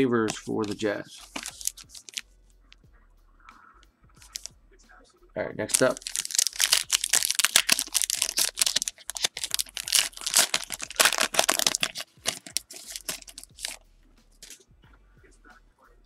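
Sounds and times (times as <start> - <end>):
foil wrapper crinkling: 0.0 - 2.2, 4.2 - 4.5, 5.7 - 13.8, 14.4 - 14.6.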